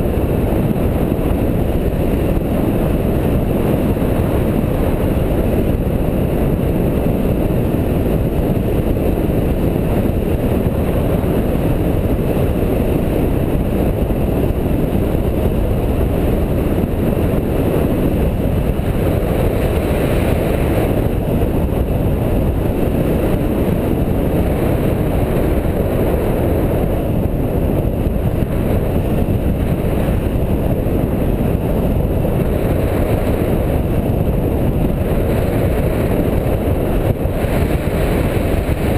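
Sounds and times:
wind buffeting microphone: 0.0 - 38.9.

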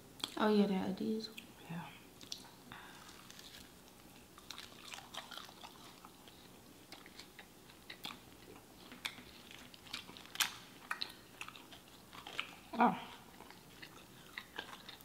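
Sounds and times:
chewing crunchy chicken: 2.2 - 15.0.

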